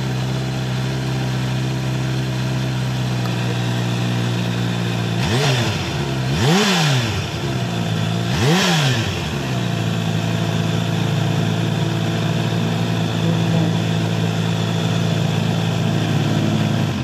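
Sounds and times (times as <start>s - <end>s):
motorcycle engine idling: 0.0s - 17.0s
motorcycle throttle blip: 3.1s - 3.8s.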